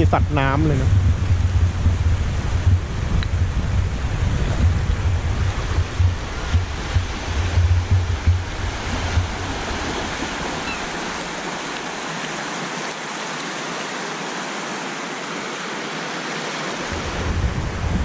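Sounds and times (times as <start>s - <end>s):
wind buffeting microphone: 0.0s - 12.2s, 16.7s - 18.0s
waves washing onto pebbles: 1.2s - 18.0s.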